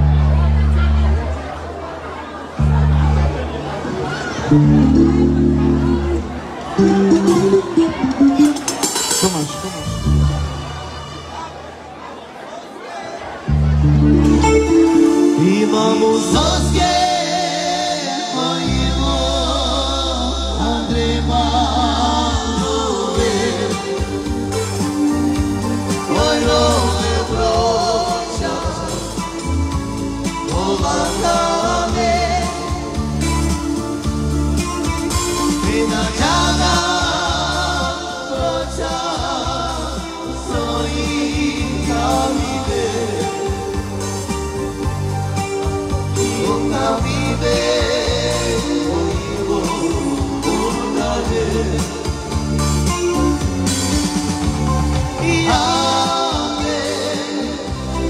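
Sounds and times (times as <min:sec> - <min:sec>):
bass guitar: 0:00.0 - 0:01.4, 0:02.6 - 0:03.5, 0:04.3 - 0:11.1, 0:13.5 - 0:17.5, 0:18.6 - 0:58.0
keyboard: 0:00.0 - 0:12.1, 0:13.4 - 0:58.0
electric guitar: 0:04.4 - 0:10.7, 0:13.6 - 0:17.2
long-held bass notes: 0:04.5 - 0:10.8, 0:13.5 - 0:17.0
singer's wavering vocal: 0:14.2 - 0:24.0
man singing: 0:14.3 - 0:24.6, 0:25.9 - 0:29.5, 0:30.3 - 0:33.3, 0:35.4 - 0:44.0, 0:46.2 - 0:52.9, 0:55.1 - 0:58.0.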